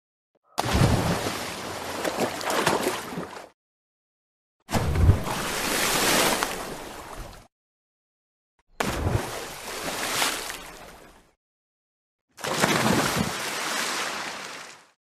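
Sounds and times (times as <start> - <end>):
ocean waves breaking: 4.8 - 7.4, 12.4 - 14.9.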